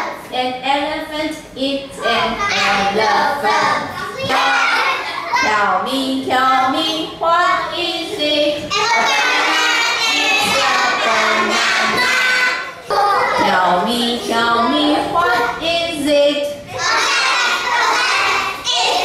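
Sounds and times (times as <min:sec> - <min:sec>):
children singing in unison: 0:02.0 - 0:15.7, 0:16.6 - 0:19.0.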